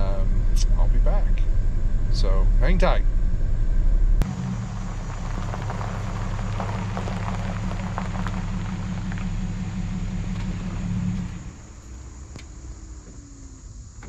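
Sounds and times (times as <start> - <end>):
truck engine running slowly: 0.0 - 14.0
tyres crackling on gravel: 4.2 - 13.6.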